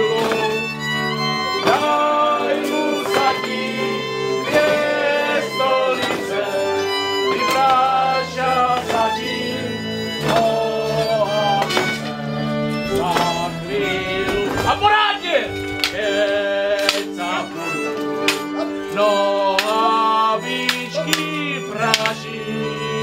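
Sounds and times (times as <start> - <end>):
fiddle melody: 0.0 - 23.0
sustained bass notes: 10.7 - 18.3
sharp strikes: 11.6 - 17.4.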